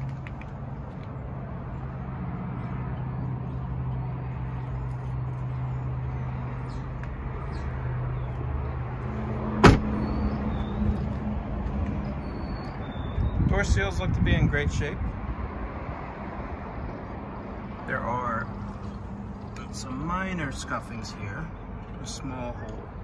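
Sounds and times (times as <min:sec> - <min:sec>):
car door slamming: 0:09.6 - 0:10.0.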